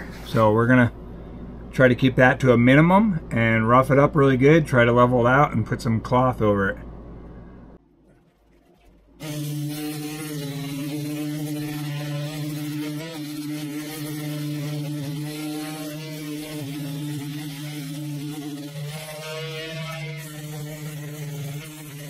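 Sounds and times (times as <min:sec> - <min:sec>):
electric sander running: 0:09.2 - 0:22.0.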